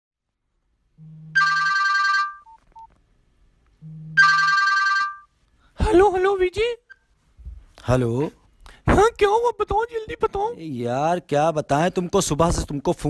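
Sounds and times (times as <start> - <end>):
low hum: 0.9 - 1.4, 3.7 - 4.4
telephone ringing: 1.0 - 2.9, 4.1 - 5.3.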